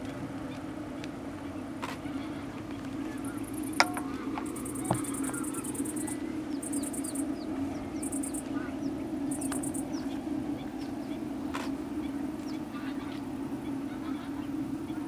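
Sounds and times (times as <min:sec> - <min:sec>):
low drone: 0:02.3 - 0:15.0
bird chirps: 0:03.2 - 0:11.2
insects trilling: 0:03.2 - 0:15.0.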